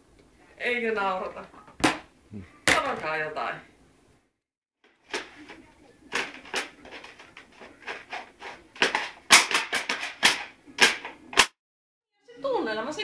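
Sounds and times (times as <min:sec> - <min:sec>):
swim fins slapping on hard floor: 0:05.1 - 0:11.6.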